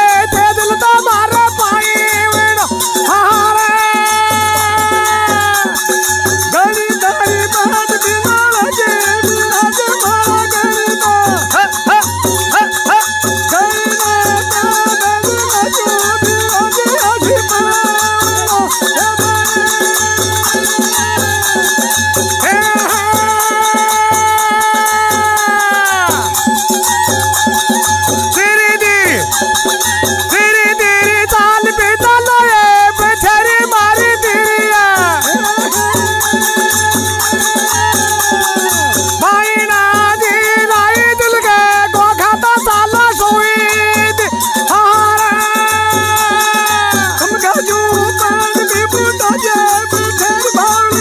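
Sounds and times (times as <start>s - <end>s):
hand drum beat: 0.0s - 51.0s
rattling hand percussion: 0.0s - 51.0s
double flutes playing melody: 25.0s - 31.4s.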